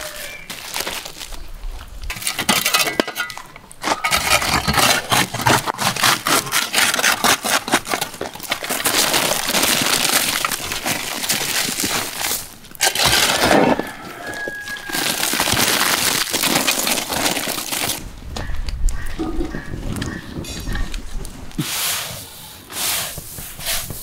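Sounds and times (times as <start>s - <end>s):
metal shovel scraping embers: 2.1s - 8.9s, 12.2s - 14.7s, 19.2s - 24.0s
charcoal rattling and clinking: 2.1s - 18.0s.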